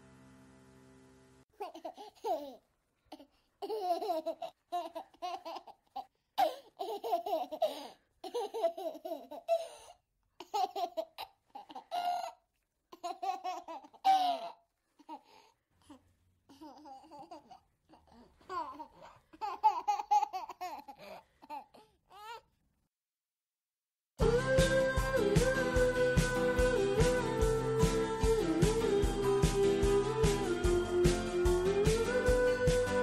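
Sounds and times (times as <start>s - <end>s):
young child laughing and babbling: 1.5s - 9.5s, 15.9s - 22.5s.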